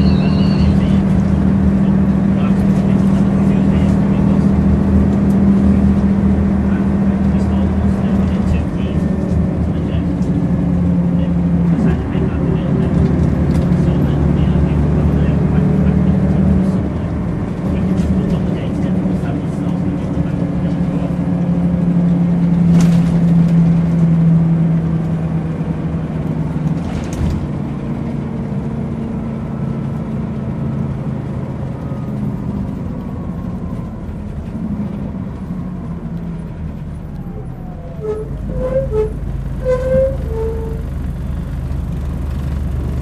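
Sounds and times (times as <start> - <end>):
bus engine droning: 0.0 - 43.0
short pitched tones: 37.8 - 40.9.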